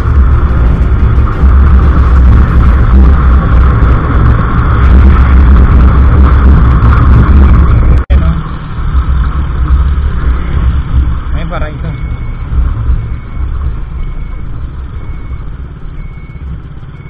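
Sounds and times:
wind rumble on microphone: 0.0 - 8.0
scooter road noise: 0.0 - 11.4.

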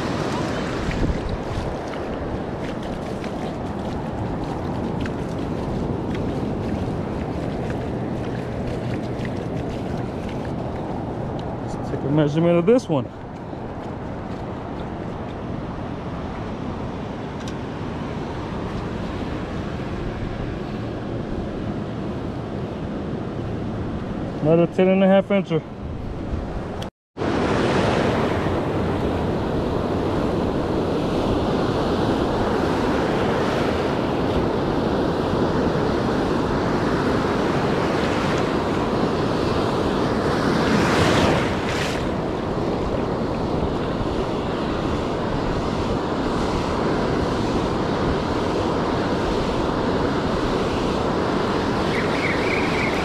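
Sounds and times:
wind on microphone: 0.0 - 12.1, 25.7 - 53.0
ocean surf breaking: 0.0 - 13.8, 27.2 - 53.0.

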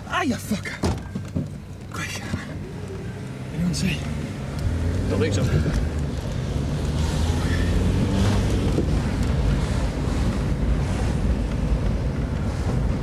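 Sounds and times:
car engine rumble: 0.0 - 13.0
road noise: 0.0 - 13.0
wind buffeting microphone: 7.8 - 13.0.

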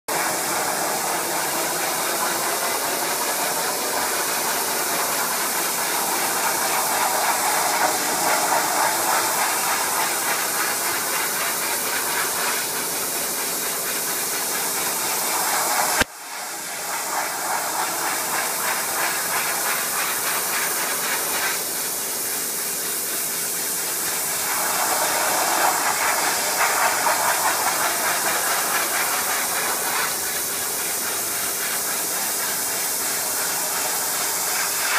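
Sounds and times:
pressure washer jet hissing on wood: 0.1 - 34.9
pressure washer machine hum: 0.1 - 34.9.

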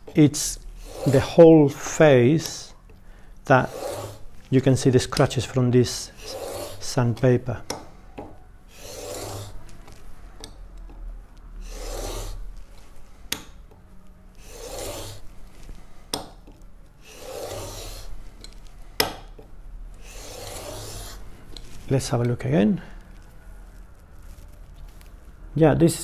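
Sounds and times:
chisel rasping on sandpaper: 0.8 - 1.5, 3.6 - 4.3, 5.9 - 7.0, 8.7 - 9.6, 11.6 - 12.4, 14.4 - 15.3, 17.0 - 18.2, 20.0 - 21.3.

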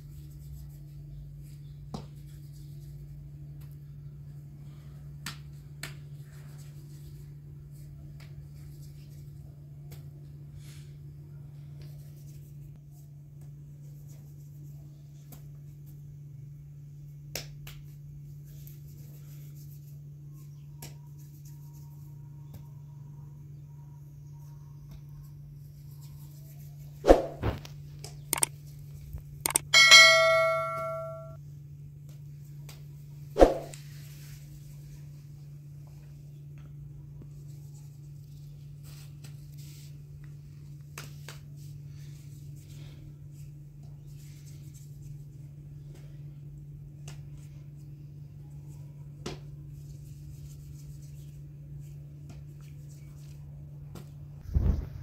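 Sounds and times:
low hum: 29.2 - 31.4
struck metal ringing: 29.6 - 31.4
metal cookware knocking: 29.7 - 31.3.

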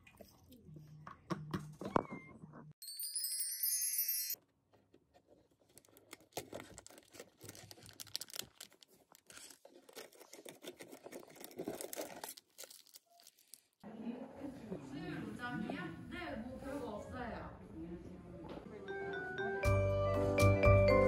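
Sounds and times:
packaging crinkling and rustling: 5.2 - 13.8.

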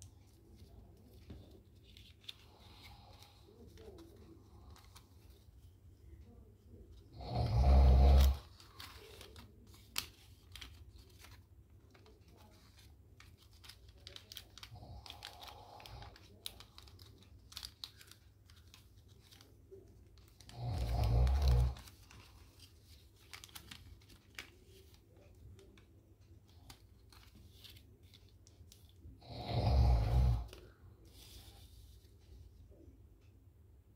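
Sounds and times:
paper crinkling and rustling: 0.0 - 29.2, 29.8 - 32.8
low snore-like sound: 29.2 - 30.5.

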